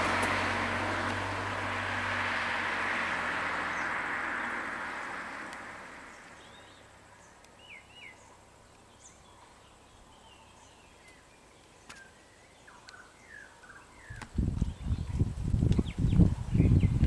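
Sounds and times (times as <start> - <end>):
vehicle passing: 0.0 - 7.3
bird chirps and calls: 6.1 - 17.0.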